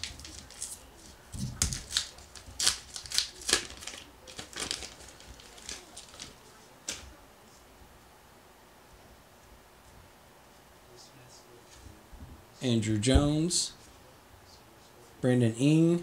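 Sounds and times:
paper wrapper crinkling: 0.0 - 7.0.

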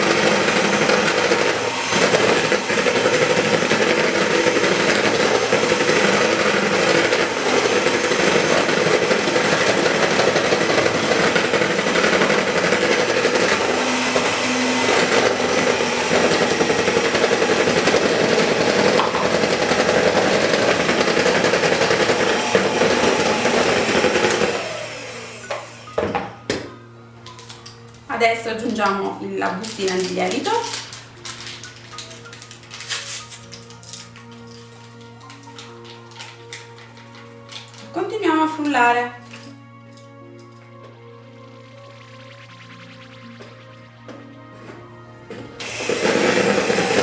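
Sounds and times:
electric hand mixer running: 0.0 - 26.2, 40.8 - 44.6, 45.6 - 47.0.

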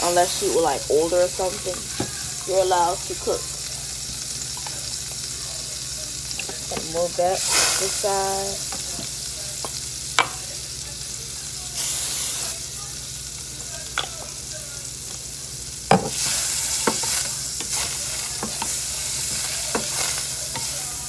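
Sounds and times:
butter sizzling in frying pan: 0.0 - 21.0
spatula scraping and knocking pan: 15.9 - 20.9.

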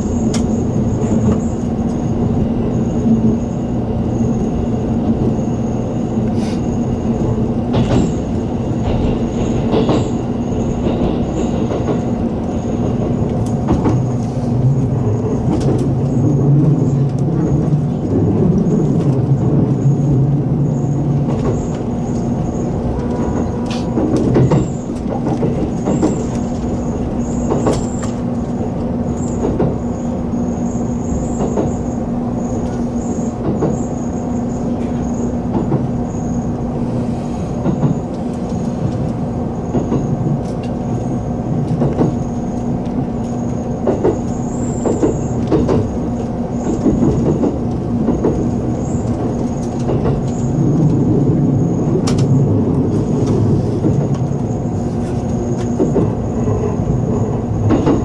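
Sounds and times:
rumble of wheels on rail: 0.0 - 58.0
wheels clicking over rail joints: 21.1 - 29.9, 37.6 - 58.0.

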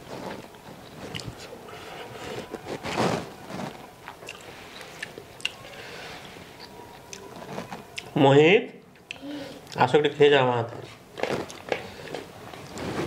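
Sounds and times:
person chewing: 0.2 - 1.5, 2.1 - 8.2, 8.9 - 9.8, 11.2 - 12.8.

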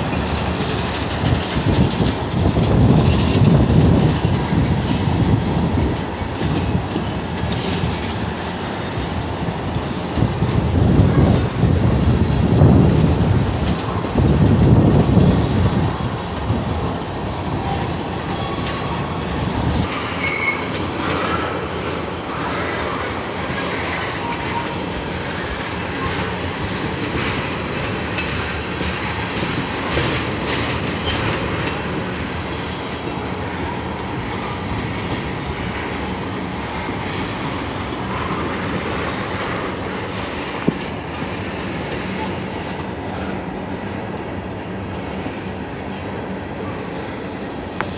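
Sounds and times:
wheels clicking over rail joints: 0.0 - 45.3
freight train rumbling past: 0.0 - 47.9
train wheel squeals: 17.4 - 44.0.

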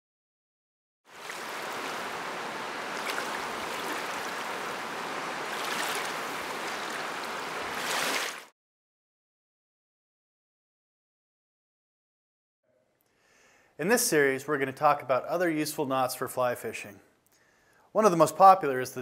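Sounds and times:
river water rushing: 1.1 - 8.5.

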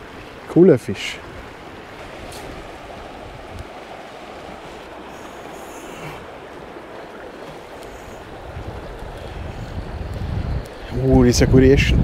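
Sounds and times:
stream flowing: 0.0 - 12.0.

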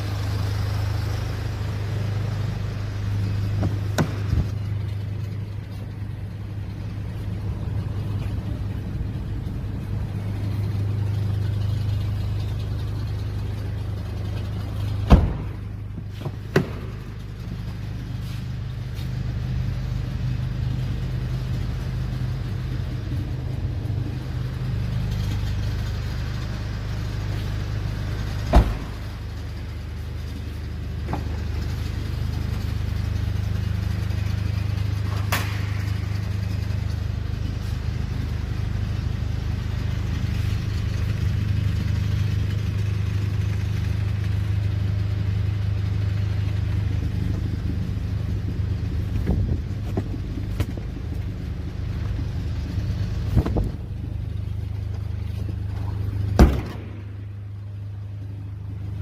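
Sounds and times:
diesel engine idling: 0.0 - 59.0
car doors knocking and clicking: 3.6 - 4.6, 15.1 - 17.0, 28.5 - 29.1.

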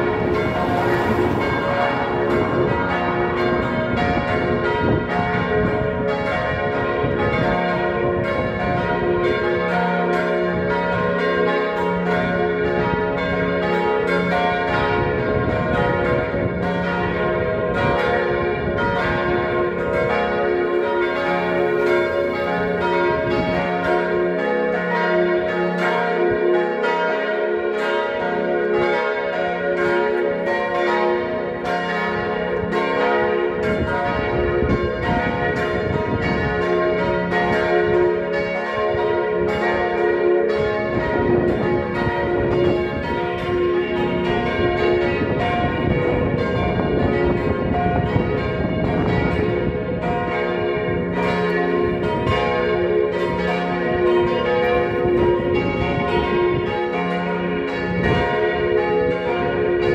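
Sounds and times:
church bells ringing: 0.0 - 59.9.

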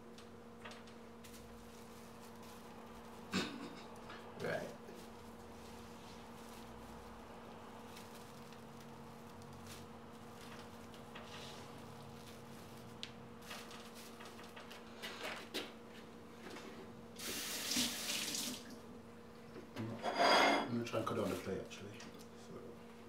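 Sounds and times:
kitchen tap running: 17.2 - 18.8.

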